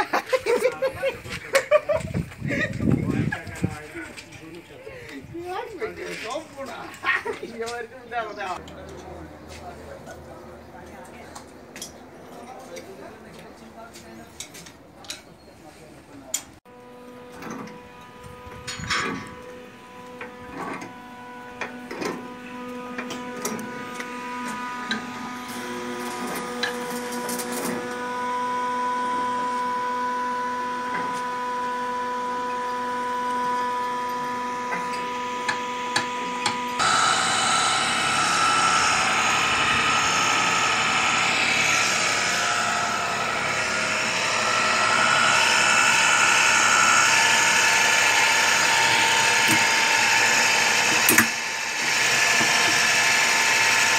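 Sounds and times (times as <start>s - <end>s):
machine hum: 16.7s - 53.9s
pipe threading machine grinding: 16.7s - 53.9s.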